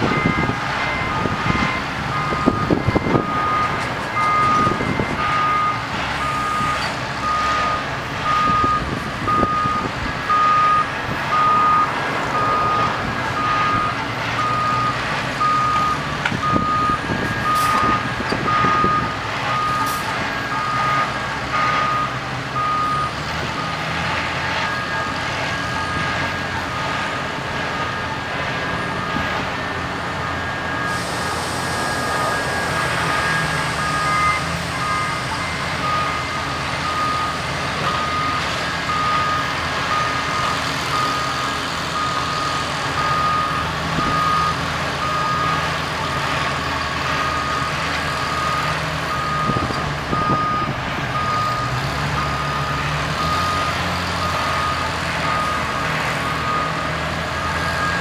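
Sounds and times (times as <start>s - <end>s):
backup alarm beeping: 0.0s - 23.8s, 30.2s - 46.2s, 47.2s - 55.8s
heavy equipment engines running: 0.0s - 58.0s.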